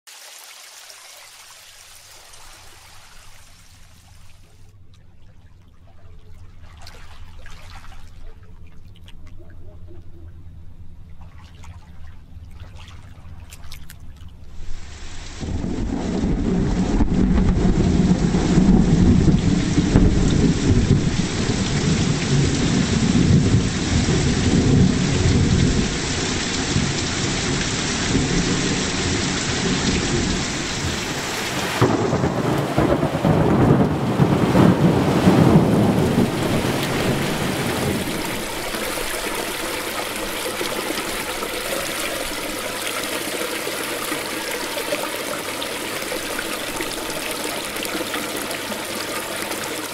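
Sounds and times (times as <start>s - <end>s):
heavy rain: 14.6s - 49.9s
rolling thunder: 14.7s - 40.6s.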